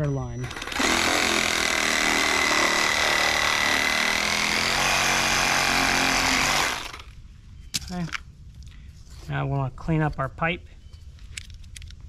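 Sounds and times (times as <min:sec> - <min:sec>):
power saw cutting pipe: 0:00.4 - 0:07.0.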